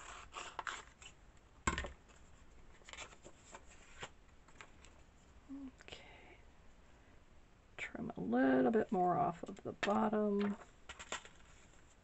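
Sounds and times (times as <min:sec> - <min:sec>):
paper rustling: 0:02.1 - 0:05.0, 0:10.4 - 0:12.0.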